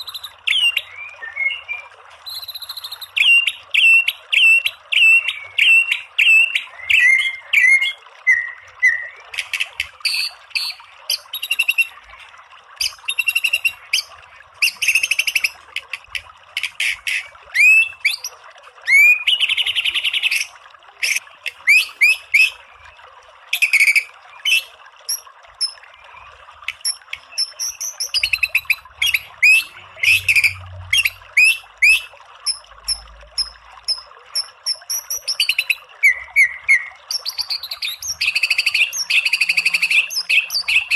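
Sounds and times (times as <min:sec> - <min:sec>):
bird singing: 0:00.0 - 0:04.0.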